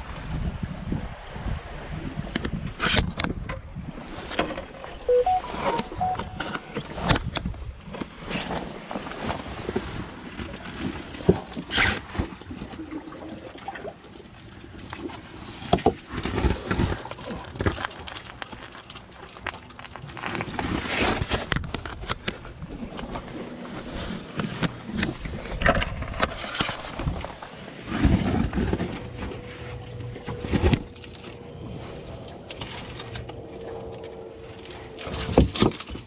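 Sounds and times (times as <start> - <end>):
wind and surf rumble: 0.0 - 11.4.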